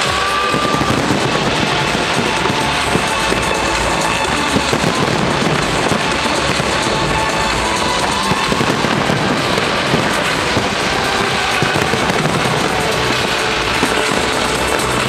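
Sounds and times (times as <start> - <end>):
fireworks crackling and popping: 0.0 - 15.0
music playing: 0.0 - 15.0.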